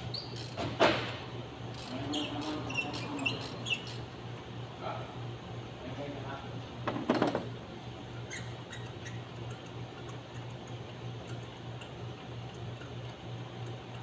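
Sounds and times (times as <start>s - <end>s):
steady low hum: 0.0s - 14.0s
hand tools clicking on metal: 1.7s - 4.0s.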